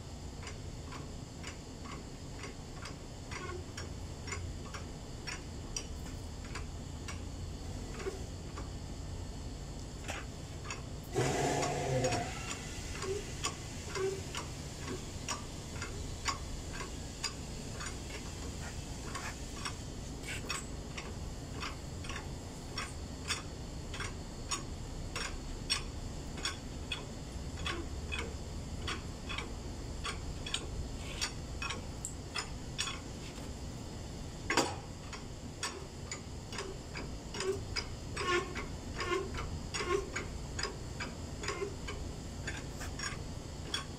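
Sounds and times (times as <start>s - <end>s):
mechanical ticking: 0.2s - 33.1s, 34.3s - 43.9s.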